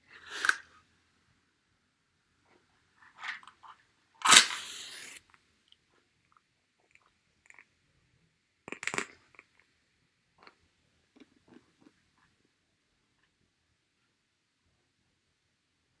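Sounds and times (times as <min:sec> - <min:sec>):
match striking and flaring: 0:04.2 - 0:05.2.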